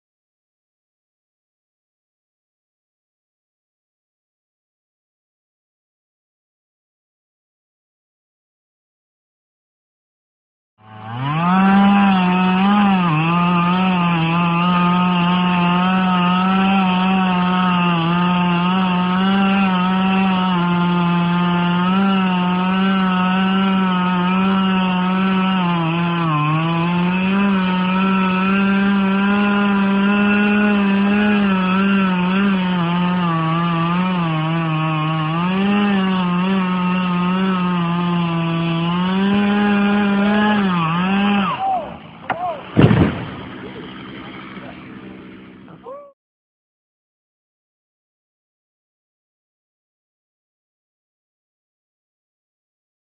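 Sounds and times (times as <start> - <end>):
chainsaw cutting wood: 10.8 - 45.9.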